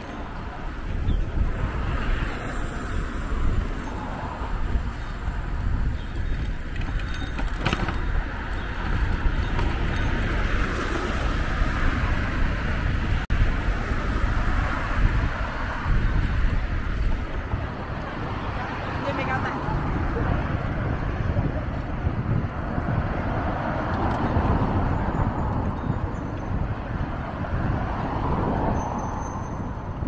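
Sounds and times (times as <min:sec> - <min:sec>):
city street traffic: 0:00.0 - 0:30.0
wind rumbling on microphone: 0:00.0 - 0:30.0.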